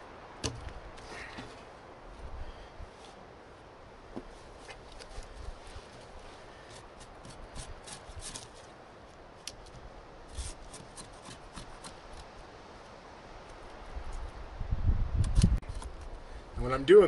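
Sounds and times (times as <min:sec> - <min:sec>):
knife shaving wood: 0:05.0 - 0:08.8, 0:10.3 - 0:12.4.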